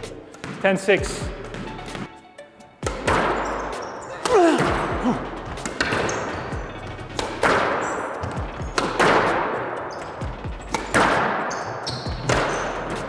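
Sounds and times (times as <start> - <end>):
shoes squeaking on wooden floor: 0.3 - 13.0
squash ball hits: 2.8 - 3.4, 4.2 - 13.0.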